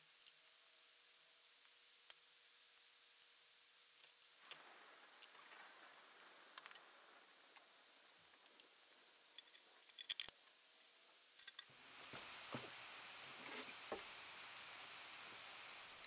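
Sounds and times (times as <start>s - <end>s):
metal fittings clicking: 11.4s - 11.7s.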